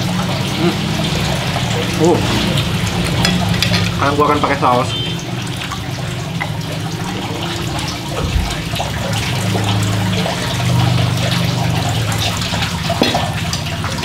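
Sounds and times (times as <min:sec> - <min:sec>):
running water trickling and splashing: 0:00.0 - 0:14.0
glass bottle set down on table: 0:13.0 - 0:13.3.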